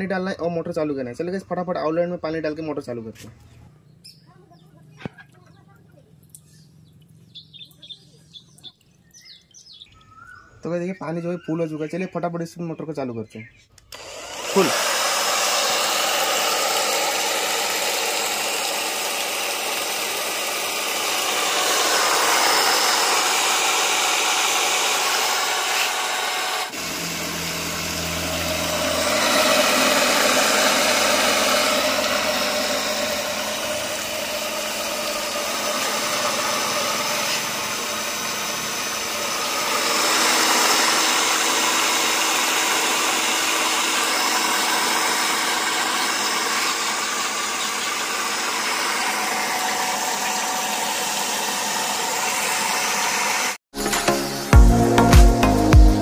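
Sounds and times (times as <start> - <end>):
cordless drill motor running: 13.8 - 53.6.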